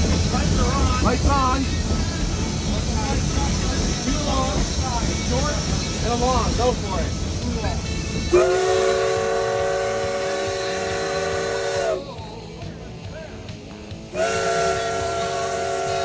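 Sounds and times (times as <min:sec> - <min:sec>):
steam locomotive chime whistle: 0:07.9 - 0:12.2, 0:14.1 - 0:16.0.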